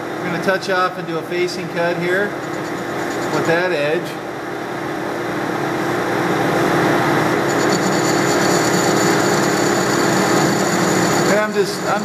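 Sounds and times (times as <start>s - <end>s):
lathe machine hum: 1.3s - 12.0s
high cutting whine: 1.6s - 3.9s, 6.5s - 12.0s.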